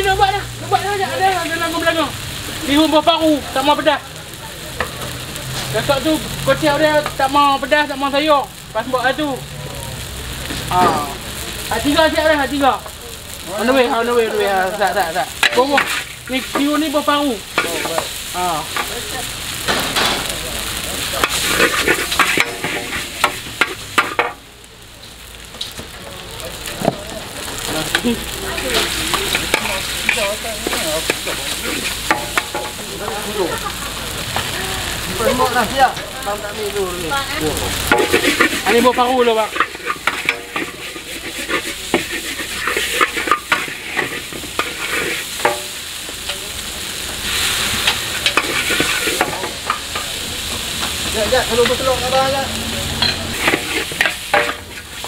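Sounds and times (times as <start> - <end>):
noodles sizzling in wok: 0.0 - 55.0
metal spatula scraping wok: 14.0 - 24.4, 27.6 - 33.8, 35.0 - 55.0.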